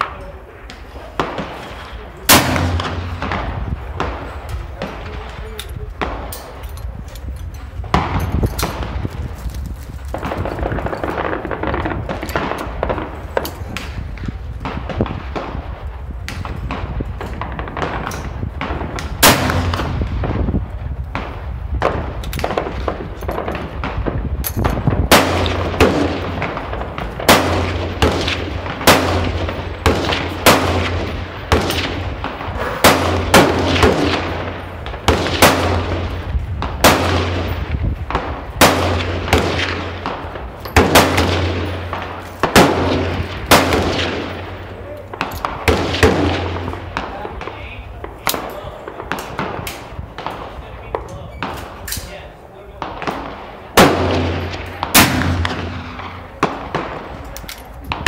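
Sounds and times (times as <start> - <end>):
gunshots with echo: 1.1 - 6.6, 16.4 - 20.5, 21.2 - 51.6, 52.8 - 57.2.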